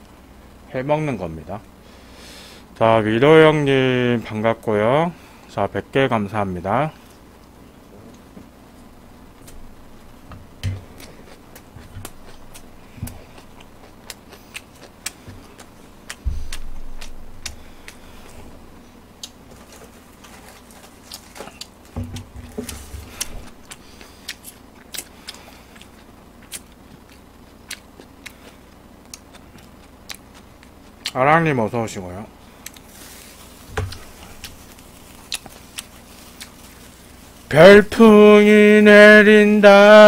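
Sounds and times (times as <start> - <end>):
person chewing: 9.4 - 31.2, 32.4 - 37.5
low thumps: 9.6 - 11.0, 16.2 - 19.1.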